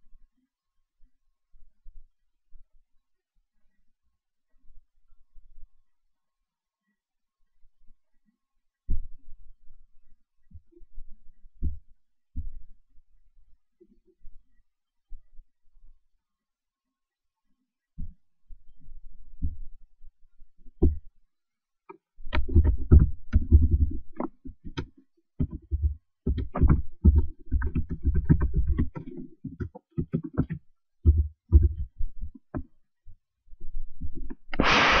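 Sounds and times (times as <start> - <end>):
keyboard typing: 22.3 - 32.6
burst of hiss: 34.6 - 35.0.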